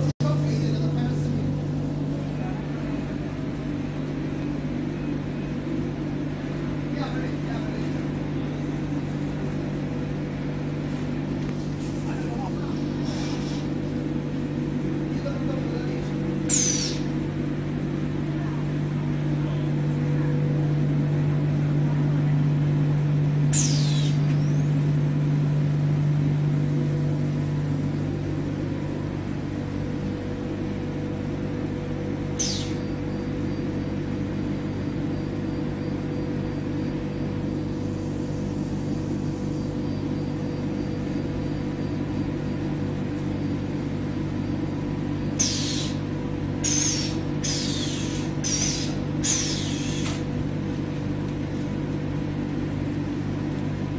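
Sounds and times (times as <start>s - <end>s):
packing machine humming: 0.0s - 53.9s
sharp pneumatic air hisses: 13.0s - 13.8s, 16.5s - 17.2s, 23.5s - 24.3s, 32.4s - 32.8s, 45.4s - 50.3s.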